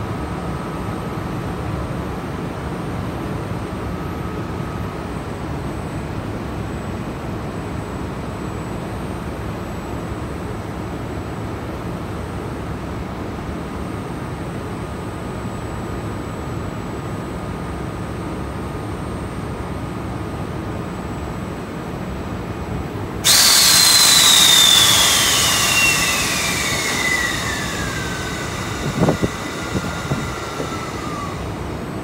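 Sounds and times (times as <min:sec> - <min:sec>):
compressed air hiss: 0:23.2 - 0:31.8
electric locomotive humming: 0:23.2 - 0:32.0
descending whistling tone: 0:23.3 - 0:32.0.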